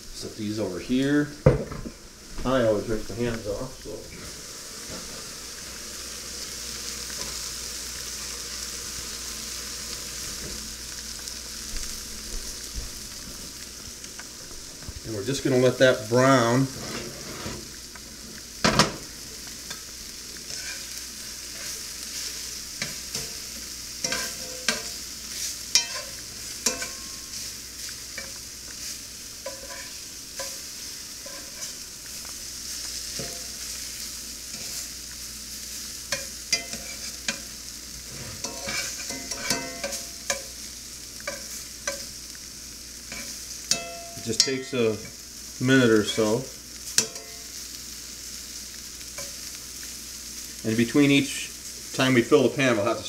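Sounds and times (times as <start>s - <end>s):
meat sizzling in a skillet: 0.0s - 53.0s
knock on pan: 1.4s - 2.0s, 18.6s - 19.0s
metal tongs scraping a pan: 16.3s - 17.8s, 20.4s - 32.2s, 32.9s - 33.7s, 34.5s - 34.9s, 36.1s - 42.1s, 43.1s - 45.2s, 46.0s - 47.6s.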